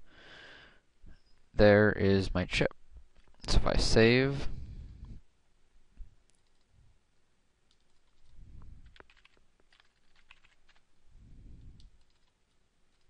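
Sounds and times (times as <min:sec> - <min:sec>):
soft low rumbles: 0:04.4 - 0:07.0
keyboard and mouse clicks: 0:06.3 - 0:06.7, 0:07.7 - 0:10.8, 0:11.6 - 0:13.0.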